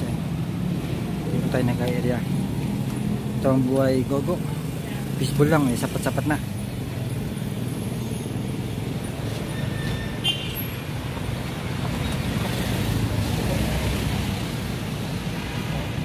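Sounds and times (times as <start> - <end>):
city street traffic: 0.0 - 16.0.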